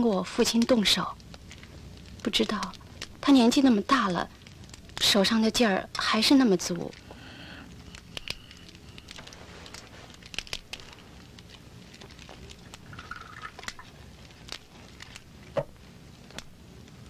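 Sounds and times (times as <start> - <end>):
wood fire crackling: 0.0 - 17.0.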